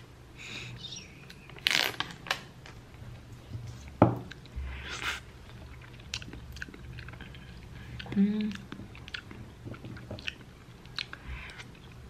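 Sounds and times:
cup knocking on wooden table: 0:04.0 - 0:04.2.

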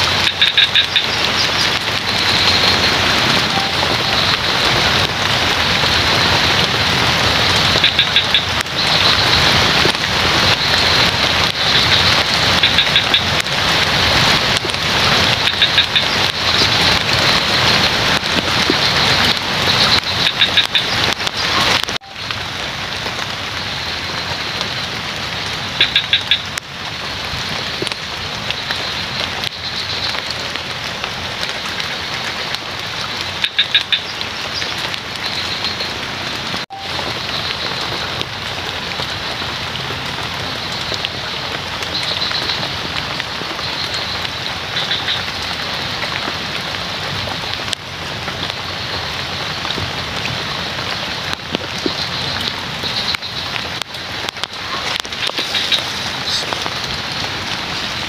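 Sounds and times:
frog calling: 0:00.0 - 0:13.4, 0:14.6 - 0:22.2, 0:25.7 - 0:26.6, 0:33.4 - 0:36.0, 0:40.5 - 0:46.8, 0:51.7 - 0:58.0
rain falling on water and foliage: 0:00.0 - 0:58.0.

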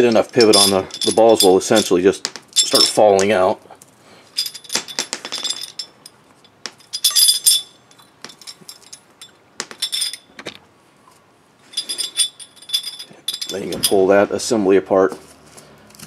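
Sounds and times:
balls dropping onto concrete: 0:00.0 - 0:03.5, 0:04.5 - 0:06.0, 0:06.6 - 0:07.4, 0:09.6 - 0:10.6
steel balls clinking: 0:00.0 - 0:03.5, 0:04.3 - 0:10.6, 0:11.6 - 0:14.2.

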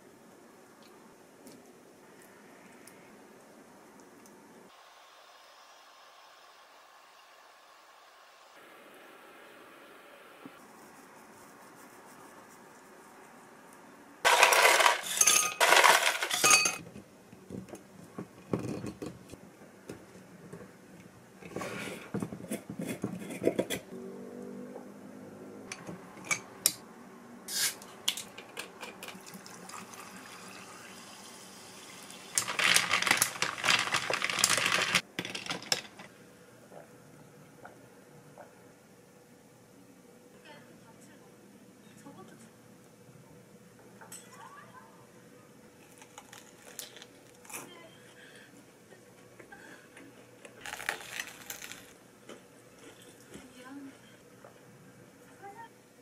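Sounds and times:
glassware and ice clinking: 0:14.3 - 0:16.8.

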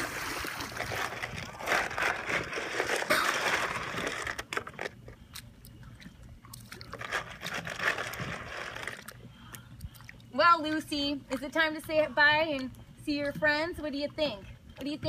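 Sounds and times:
water splashing against dock: 0:00.0 - 0:05.0.

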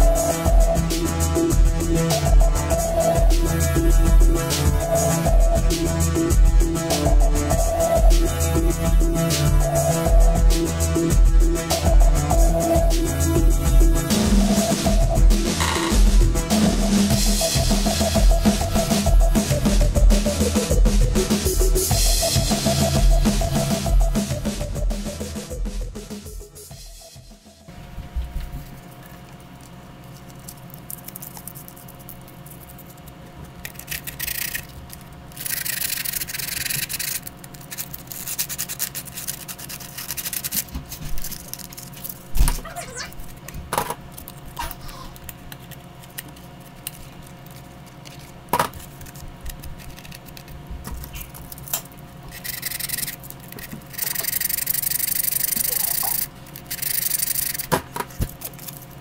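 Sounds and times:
steady low hum: 0:00.0 - 0:59.0
hands rubbing papier-mache model: 0:28.6 - 0:42.3.

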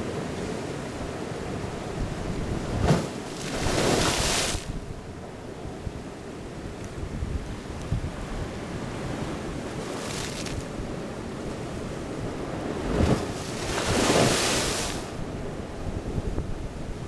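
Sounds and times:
wind buffeting microphone: 0:01.5 - 0:17.0
surf breaking on rocks: 0:02.6 - 0:04.7, 0:09.1 - 0:10.7, 0:12.4 - 0:15.2.

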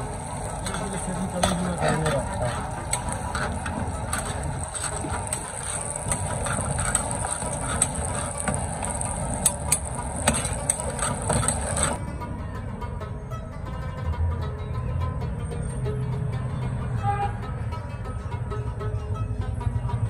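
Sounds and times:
food frying in a wok: 0:00.0 - 0:12.0
metal ladle scraping a pan: 0:00.0 - 0:12.0.

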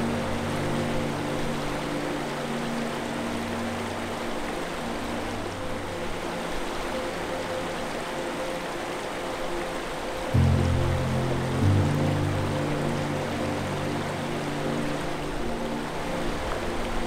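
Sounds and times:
water rushing over rocks: 0:00.0 - 0:17.0
faint low held notes: 0:10.4 - 0:17.0.

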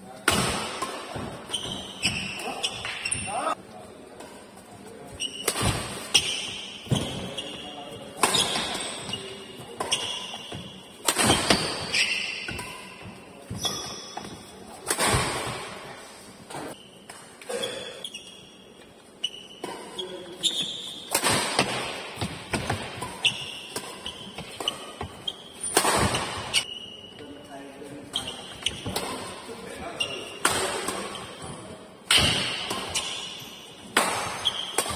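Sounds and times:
shoes squeaking on court: 0:00.8 - 0:31.8, 0:32.4 - 0:34.9
rackets smacking shuttlecock: 0:08.0 - 0:15.8, 0:20.5 - 0:26.7, 0:32.0 - 0:34.9.

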